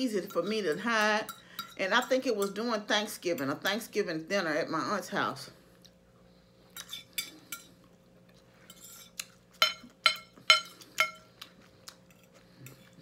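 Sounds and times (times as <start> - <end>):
fork scraping plate: 8.6 - 11.3.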